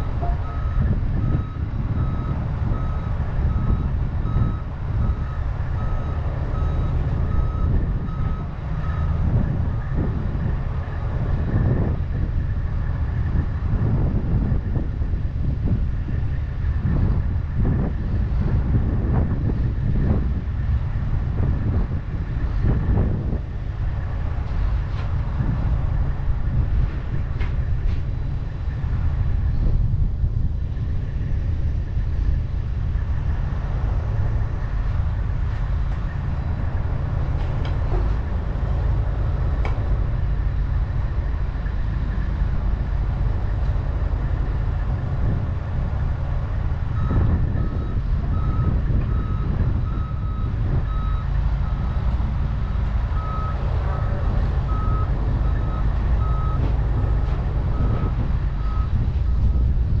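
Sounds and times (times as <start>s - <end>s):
high warning beeper: 0.0s - 0.9s
diesel engine rumbling: 0.0s - 60.0s.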